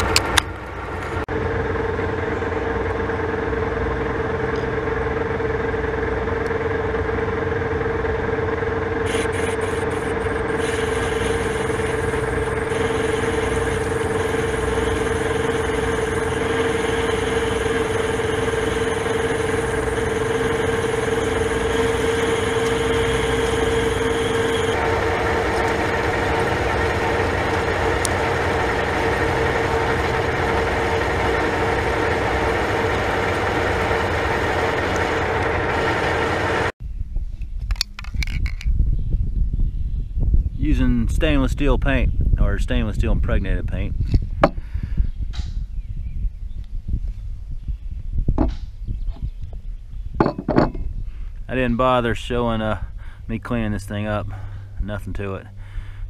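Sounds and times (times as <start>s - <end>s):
metal lathe humming: 0.0s - 36.8s
lathe tool cutting metal: 8.9s - 36.7s.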